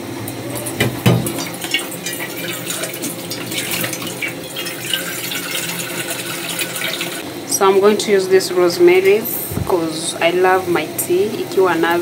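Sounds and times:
tap water running into bowl: 0.5s - 7.2s.

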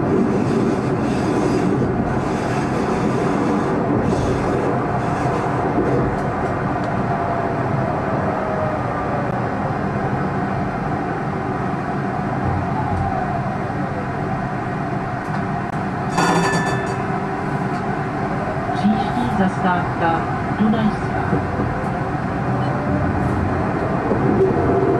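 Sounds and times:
tram rumbling on rails: 0.0s - 24.9s
brief ringing: 16.1s - 17.0s.

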